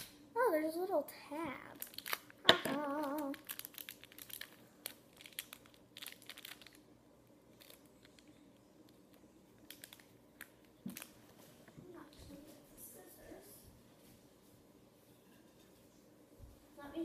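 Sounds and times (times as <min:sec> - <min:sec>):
plastic packaging crinkling: 0:01.6 - 0:11.3.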